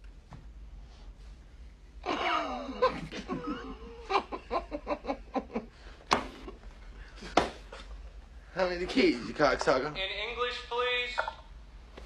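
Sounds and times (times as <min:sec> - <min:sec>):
men laughing: 0:02.0 - 0:08.2.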